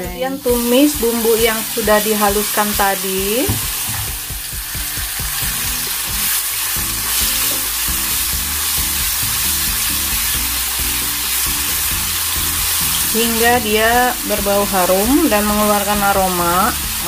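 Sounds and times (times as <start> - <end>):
paste sizzling in a wok: 0.2 - 17.0.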